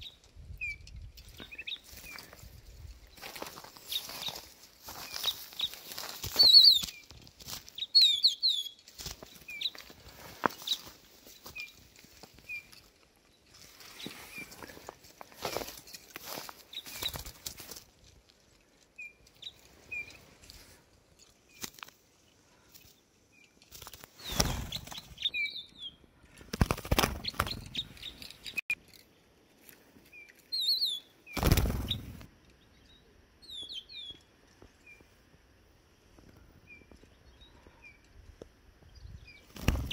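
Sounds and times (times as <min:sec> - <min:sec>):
finches chirping: 0:07.8 - 0:08.8
wing-flapping and rustling: 0:08.9 - 0:12.5, 0:13.6 - 0:18.0, 0:23.6 - 0:25.3, 0:26.2 - 0:28.7, 0:31.4 - 0:32.3, 0:39.4 - 0:39.9.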